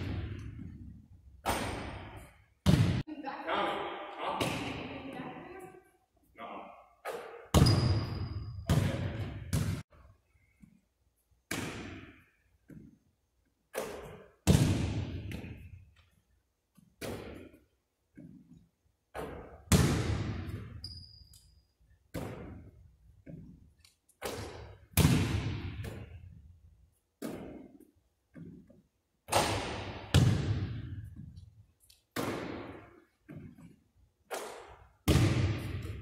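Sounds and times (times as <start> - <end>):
ball striking backboard and rim: 1.4 - 3.0, 7.0 - 9.8, 11.5 - 12.9, 13.7 - 15.6, 19.1 - 20.9, 22.1 - 23.5, 24.2 - 26.1, 29.3 - 31.3, 32.2 - 33.5, 34.3 - 36.0
basketball bouncing on hardwood: 2.6 - 3.0, 7.1 - 9.8, 30.1 - 31.4.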